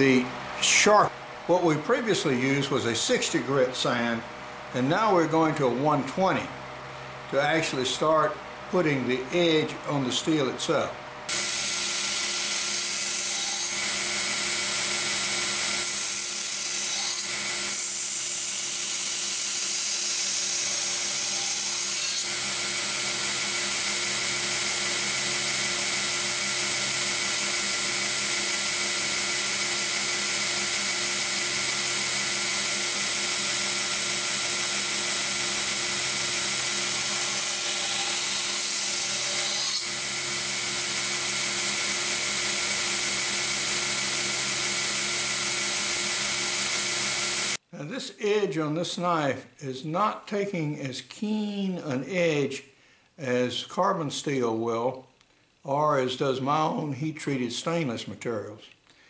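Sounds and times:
belt grinder whining: 0:11.3 - 0:47.6.

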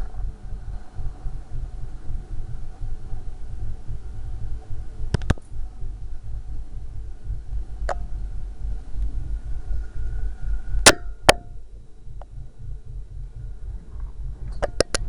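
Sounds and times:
continuous low rumble: 0:00.0 - 0:15.0.

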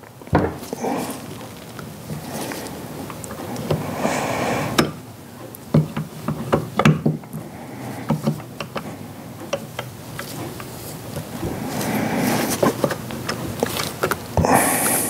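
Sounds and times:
gloved hands rustling: 0:00.6 - 0:04.8, 0:07.8 - 0:15.0.

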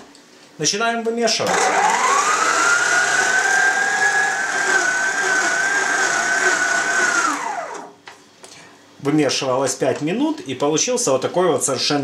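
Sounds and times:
stand mixer motor whining: 0:01.5 - 0:08.0.

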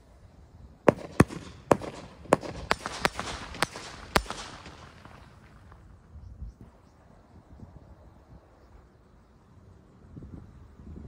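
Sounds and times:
fireworks bangs: 0:00.8 - 0:05.9
fireworks hissing crackle: 0:00.8 - 0:06.2.

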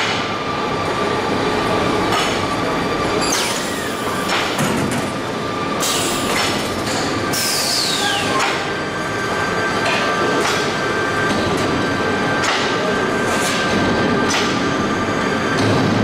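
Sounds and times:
steady machine noise: 0:00.0 - 0:16.0.

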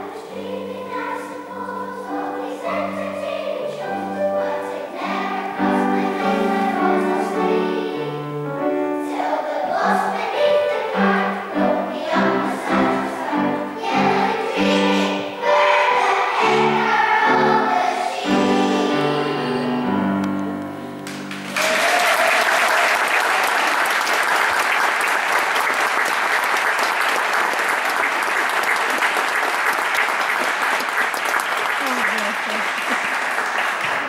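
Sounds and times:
children's choir singing: 0:00.0 - 0:23.5
audience applause: 0:21.0 - 0:34.0.

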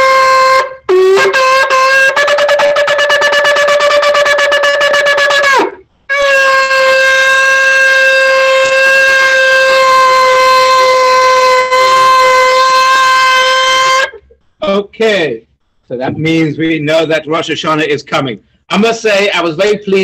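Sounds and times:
shofar blasts: 0:00.0 - 0:15.2.

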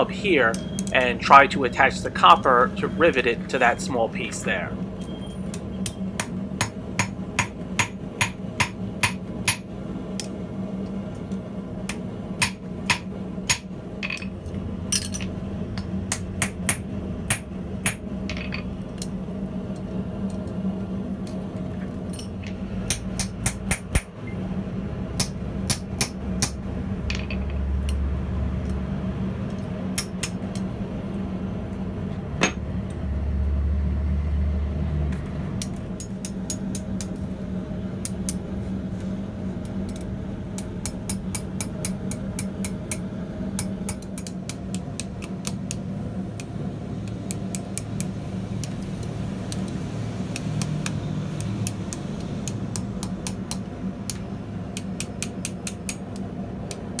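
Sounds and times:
steady low hum: 0:00.0 - 0:57.0
hammer striking steel on anvil: 0:05.8 - 0:10.3, 0:11.9 - 0:14.3, 0:14.9 - 0:18.7, 0:22.1 - 0:24.1, 0:25.2 - 0:27.6, 0:30.0 - 0:30.5, 0:32.4 - 0:32.6, 0:40.8 - 0:43.0.

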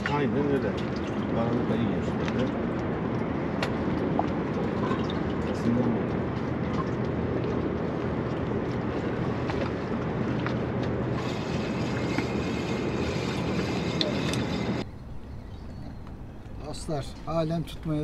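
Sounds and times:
low engine hum: 0:00.0 - 0:18.0
water noise: 0:00.0 - 0:18.0.

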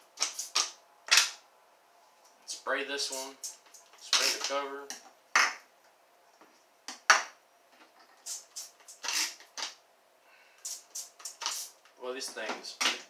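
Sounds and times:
spray bottle spritzing: 0:00.2 - 0:01.3, 0:08.2 - 0:09.8, 0:10.6 - 0:11.8.

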